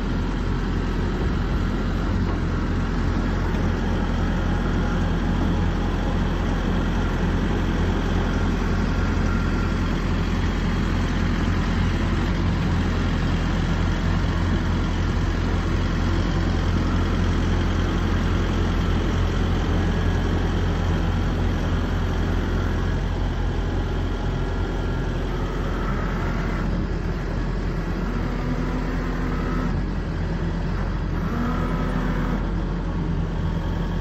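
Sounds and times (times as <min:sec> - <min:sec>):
excavator diesel engine running: 0:00.0 - 0:34.0
hydraulic whines: 0:24.8 - 0:29.9, 0:30.6 - 0:32.7.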